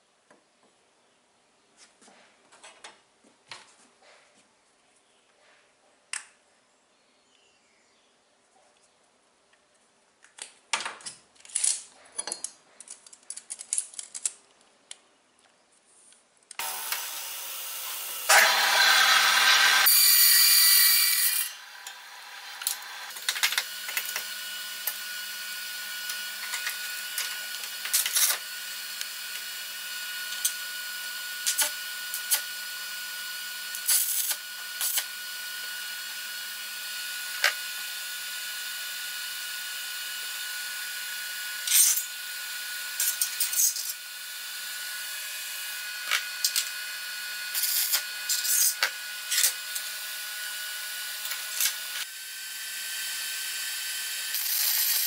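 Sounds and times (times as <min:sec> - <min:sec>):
power tool running loudly: 0:16.6 - 0:55.0.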